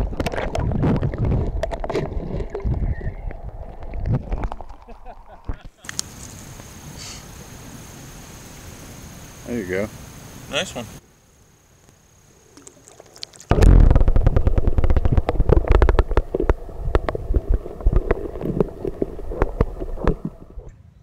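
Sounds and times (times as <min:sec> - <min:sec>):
water gurgling underwater: 0:00.0 - 0:05.6, 0:12.6 - 0:20.7.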